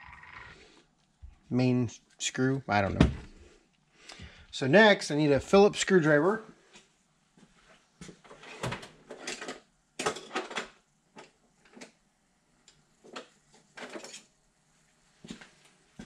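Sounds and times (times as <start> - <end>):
tools clattering on a workbench: 8.2 - 11.9, 13.1 - 14.3.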